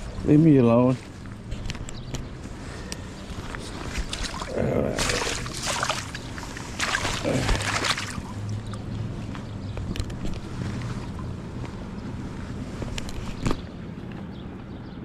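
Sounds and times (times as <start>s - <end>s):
water splashing: 3.9s - 8.8s.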